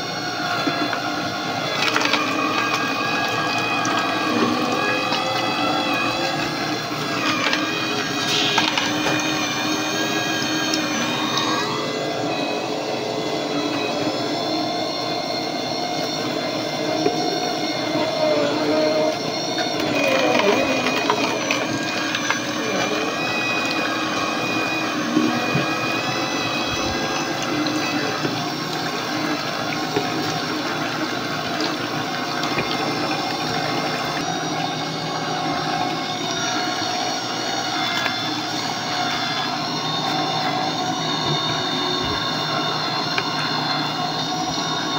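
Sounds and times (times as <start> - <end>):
electric juicer motor humming: 0.0 - 44.9.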